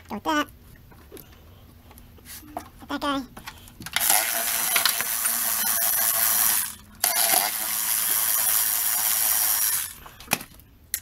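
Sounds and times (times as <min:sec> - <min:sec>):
electric ratchet spinning: 0:04.0 - 0:10.1.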